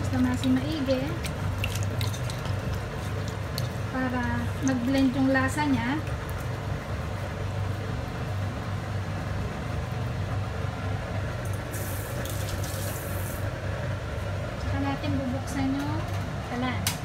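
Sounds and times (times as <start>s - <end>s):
kitchen appliance humming: 0.0s - 17.0s
hands squishing raw chicken: 1.2s - 4.9s.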